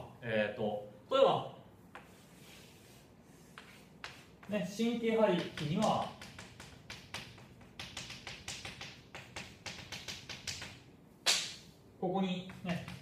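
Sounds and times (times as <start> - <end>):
chalk tapping and scraping on blackboard: 1.9 - 11.4, 12.4 - 13.0.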